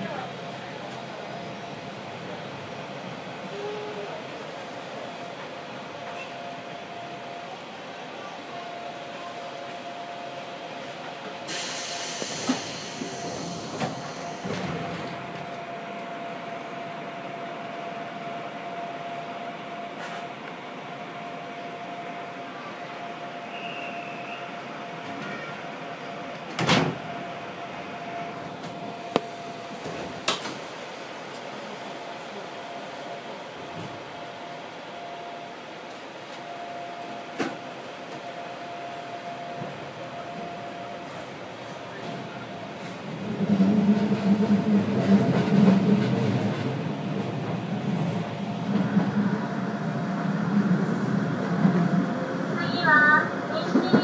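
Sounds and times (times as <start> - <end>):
train cab hum: 0.0 - 54.0
train wheels rumbling: 10.7 - 21.3, 39.5 - 54.0.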